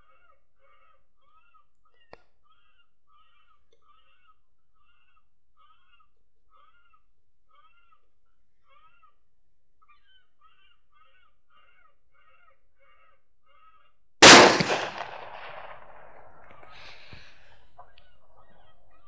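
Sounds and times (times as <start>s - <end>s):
rifle shot with echo: 14.2s - 17.9s.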